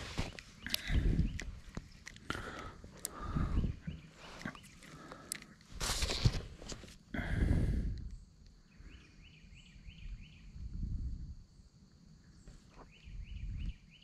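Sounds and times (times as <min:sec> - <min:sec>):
fishing rod and reel rustling: 0:00.0 - 0:07.1.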